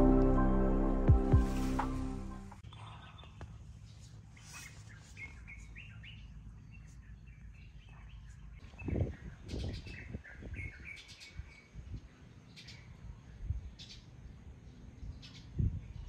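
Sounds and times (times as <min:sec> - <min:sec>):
low thumps: 0:00.0 - 0:02.6
low outdoor rumble: 0:00.0 - 0:04.4
small birds chirping: 0:02.6 - 0:16.0.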